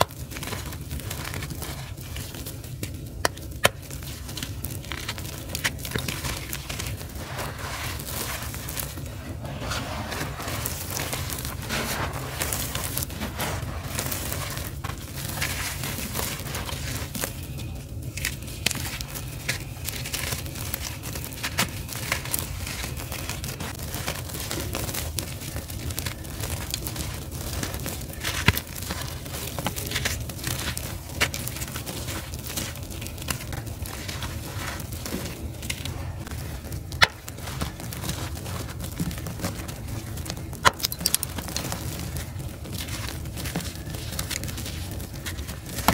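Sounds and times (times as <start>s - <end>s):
low hum: 0.0s - 24.7s
charcoal crunching and crackling: 0.0s - 45.9s.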